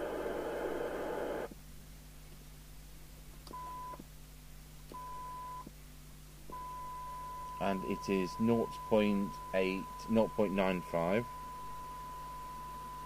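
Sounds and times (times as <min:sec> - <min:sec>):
radio receiver hiss: 0:00.0 - 0:01.6
steady test tone: 0:06.5 - 0:13.0.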